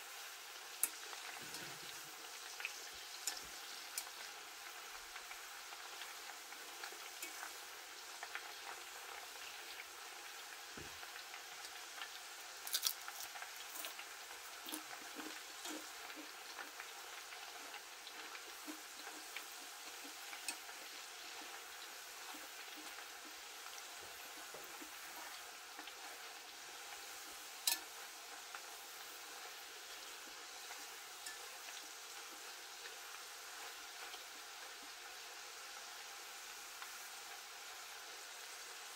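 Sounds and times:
food sizzling in hot oil: 0.0 - 38.9
metal fork clicking on pot: 20.4 - 20.6, 27.6 - 27.9.

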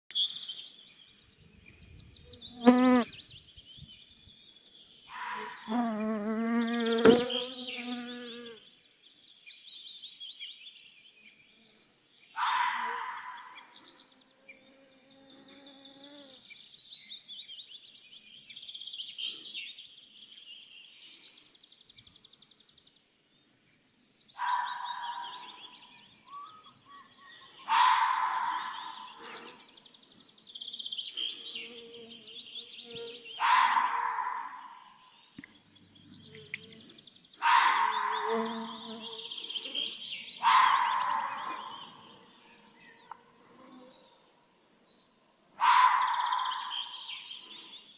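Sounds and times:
birds singing and trilling: 0.1 - 47.9
fox barking: 5.1 - 5.8, 12.4 - 13.6, 24.4 - 25.6, 27.6 - 29.6, 33.4 - 34.9, 37.4 - 38.6, 40.4 - 41.9, 45.6 - 46.8.

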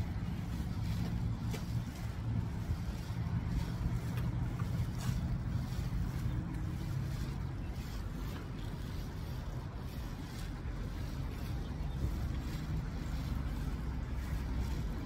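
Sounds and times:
faint short rustles: 0.0 - 15.0
low rumble: 0.0 - 15.0
steady low hum: 0.0 - 15.0.

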